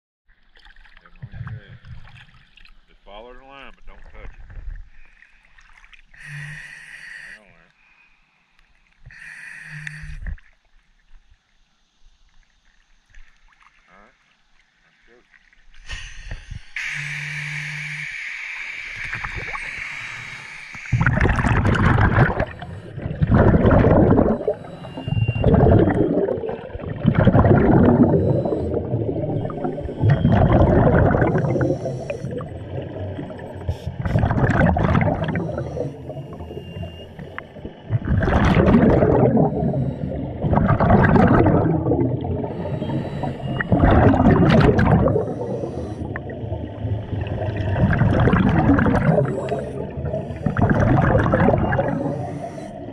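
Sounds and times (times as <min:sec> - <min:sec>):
exhaled bubbles gurgling underwater: 0:18.6 - 0:52.9.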